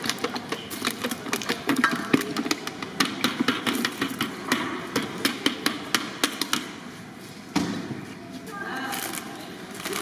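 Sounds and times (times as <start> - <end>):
sharp knocks and clatter: 0.0 - 6.8.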